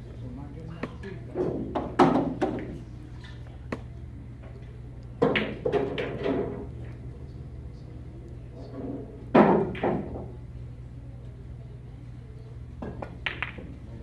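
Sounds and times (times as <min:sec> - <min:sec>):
steady low hum: 0:00.0 - 0:14.0
pool balls clacking: 0:00.8 - 0:02.8, 0:05.2 - 0:06.8, 0:09.0 - 0:10.3, 0:12.8 - 0:14.0.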